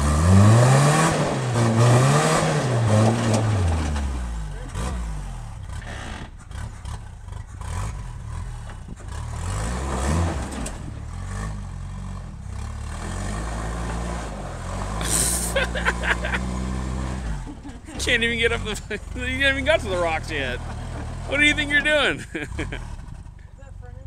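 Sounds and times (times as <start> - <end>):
truck engine revving: 0.0 - 24.0
brief hiss: 15.1 - 15.6.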